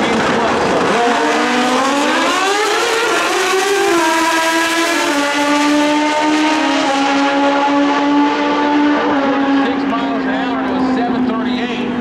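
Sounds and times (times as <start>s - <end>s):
motorcycle engines revving: 0.0s - 12.0s.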